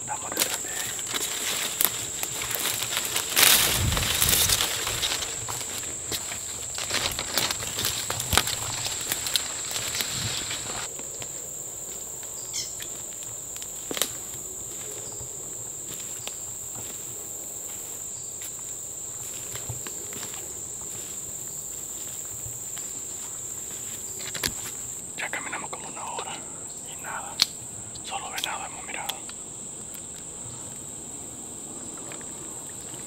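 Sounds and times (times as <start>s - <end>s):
insects buzzing: 0.0s - 33.0s
rustling through brush: 0.1s - 25.2s
footsteps on leaf litter: 0.3s - 24.9s.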